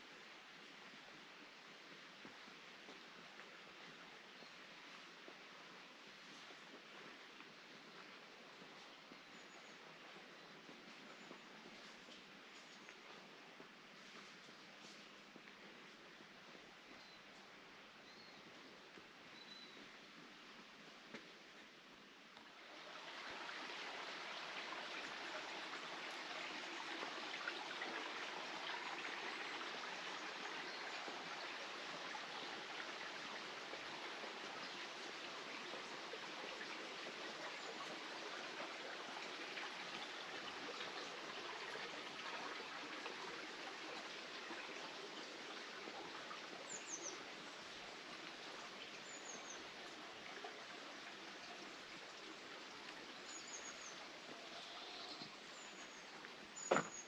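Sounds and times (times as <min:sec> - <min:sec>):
water rushing: 0:22.4 - 0:57.0.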